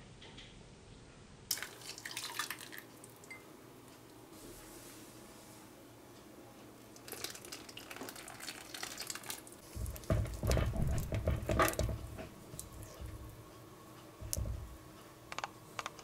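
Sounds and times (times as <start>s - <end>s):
milk pouring into a bowl: 1.5s - 3.2s, 7.0s - 11.9s
wire whisk beating batter: 7.2s - 13.3s.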